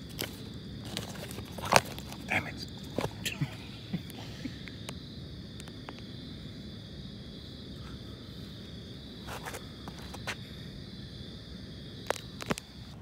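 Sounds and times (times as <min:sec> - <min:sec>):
night insects trilling: 0:00.0 - 0:13.0
footsteps scuffing: 0:09.2 - 0:10.4.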